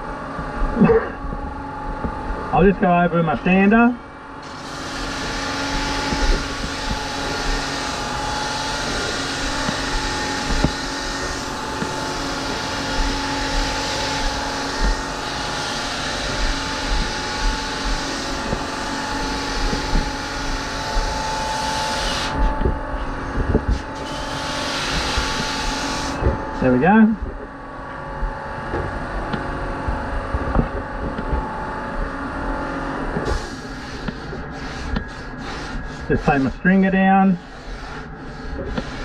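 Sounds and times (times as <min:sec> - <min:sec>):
sander motor whine: 0:01.6 - 0:35.0
sanding pad hissing on foam: 0:04.4 - 0:27.0, 0:33.2 - 0:39.0.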